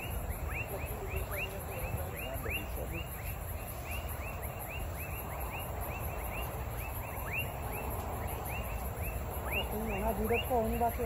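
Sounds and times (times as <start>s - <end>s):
frogs whistling: 0.0s - 11.0s
high pulsing insect trill: 0.0s - 11.0s.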